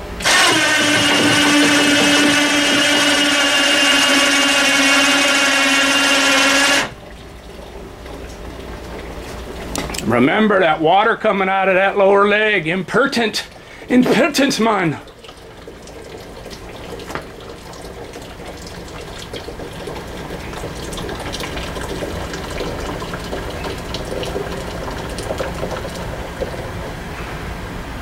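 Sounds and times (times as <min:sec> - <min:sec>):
water splashing into tank: 0:13.6 - 0:27.1.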